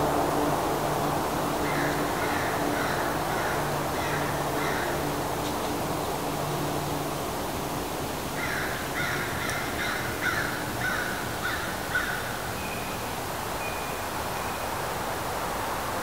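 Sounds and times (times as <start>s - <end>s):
steady background hiss: 0.0s - 16.0s
crow cawing: 1.6s - 5.1s, 8.4s - 12.3s.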